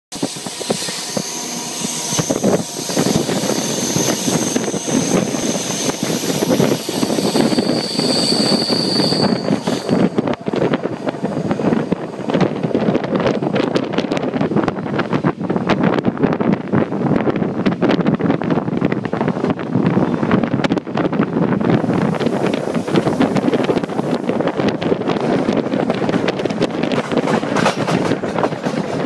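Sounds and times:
train wheels clicking and clattering: 0:00.1 - 0:15.2, 0:21.9 - 0:29.0
wheel and rail rumble: 0:00.1 - 0:29.0
wind buffeting microphone: 0:00.1 - 0:29.0
high squeal: 0:00.2 - 0:12.7.

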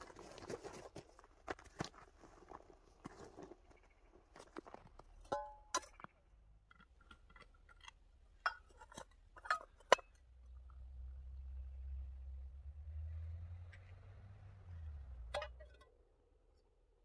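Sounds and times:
lid clicks and knocks: 0:07.0 - 0:10.2.

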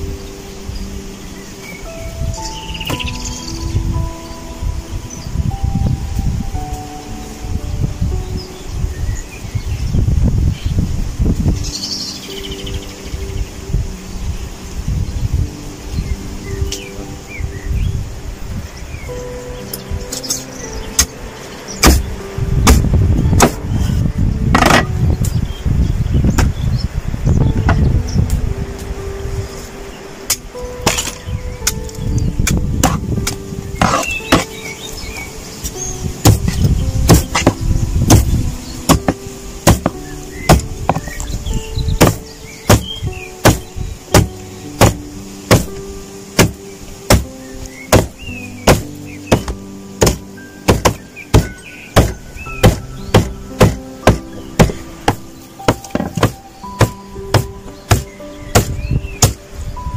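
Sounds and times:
cleaver chopping onto wooden board: 0:21.8 - 0:23.6, 0:24.6 - 0:24.9, 0:32.8 - 0:34.5, 0:36.2 - 0:38.3, 0:38.9 - 0:39.9, 0:40.5 - 0:41.1, 0:42.0 - 0:45.7, 0:46.4 - 0:47.2, 0:47.9 - 0:48.1, 0:48.7 - 0:59.4.

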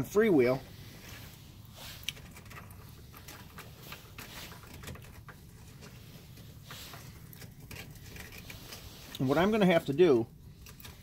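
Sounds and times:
winch cable clicking and rustling: 0:02.0 - 0:09.3, 0:10.0 - 0:11.0.

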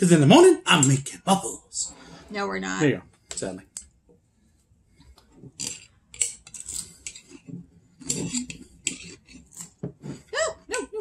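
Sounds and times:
knife scraping a glass jar: 0:05.5 - 0:10.3.

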